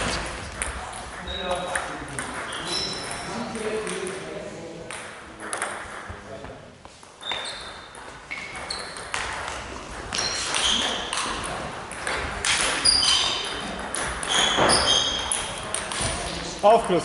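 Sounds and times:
high-pitched squeaks: 2.5 - 3.3, 10.1 - 11.4, 12.7 - 13.6, 14.2 - 15.6.

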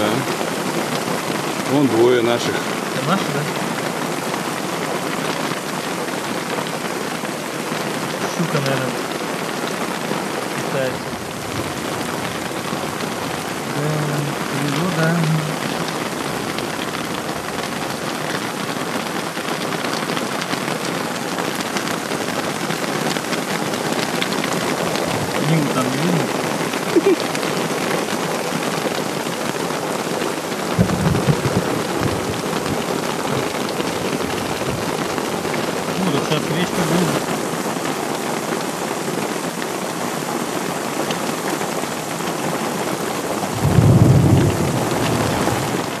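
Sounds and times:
heavy rain hiss: 0.0 - 46.0
raindrops ticking: 0.0 - 46.0
thunder rumble: 30.7 - 37.2, 43.5 - 46.0.

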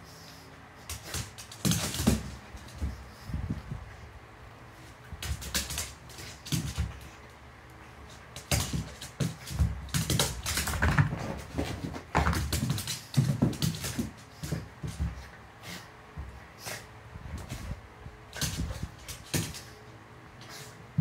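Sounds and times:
dog claws scrabbling on wood floor: 0.9 - 3.6, 8.1 - 15.3.

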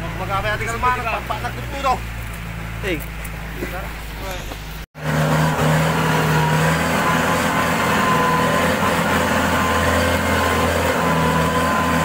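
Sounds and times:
tractor diesel engine running: 0.0 - 12.0.

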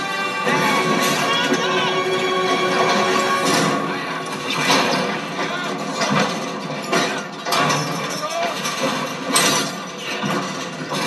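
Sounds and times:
film music with held notes: 0.0 - 7.6.

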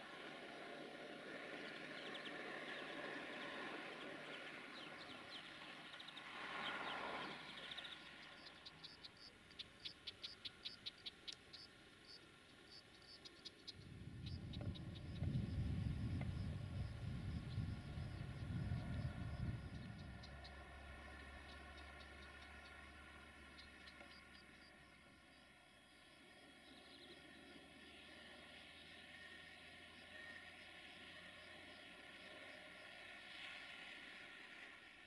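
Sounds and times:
distant train: 0.0 - 35.0
insect chirping clicks: 7.7 - 25.4
low rumble: 13.7 - 23.7.

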